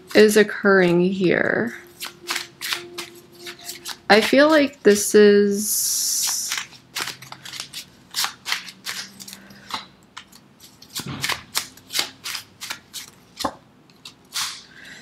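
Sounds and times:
cards shuffling and snapping: 1.9s - 5.1s, 6.0s - 14.7s.

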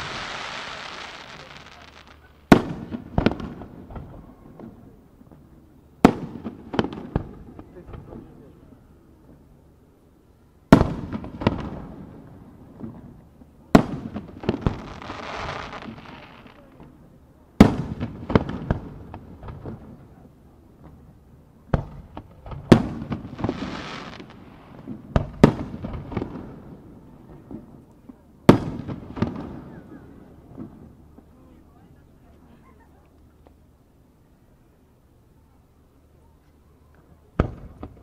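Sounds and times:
firework shells bursting: 0.0s - 4.0s
hissing crackle of fireworks: 0.0s - 32.3s, 33.1s - 38.0s.

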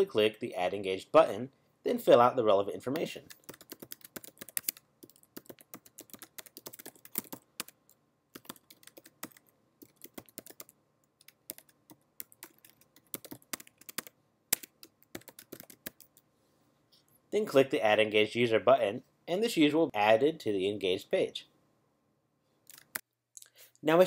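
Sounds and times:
typing on computer keyboard: 3.0s - 16.2s, 22.7s - 23.0s.

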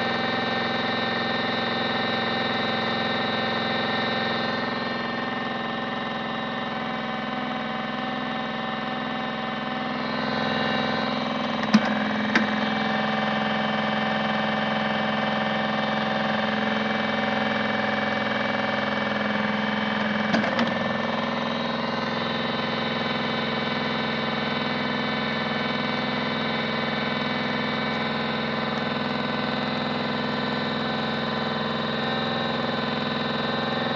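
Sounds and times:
toy washing machine motor humming: 9.9s - 23.2s
plastic drawer clicks: 11.6s - 12.5s.

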